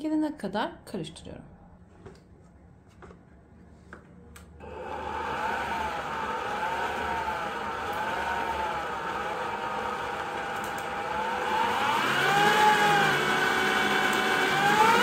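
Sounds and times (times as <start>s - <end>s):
stand mixer motor whirring: 4.6s - 15.0s.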